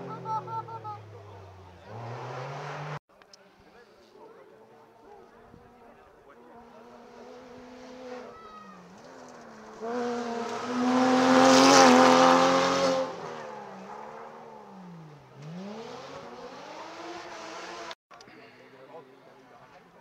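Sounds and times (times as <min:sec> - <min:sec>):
rally car engine passing: 0:00.0 - 0:03.0, 0:06.4 - 0:18.0.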